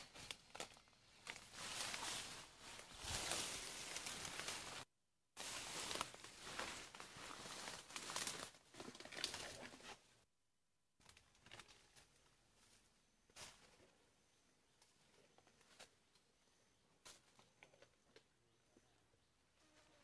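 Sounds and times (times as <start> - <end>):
rustling of undergrowth and bamboo: 0.0 - 10.2, 11.0 - 18.4.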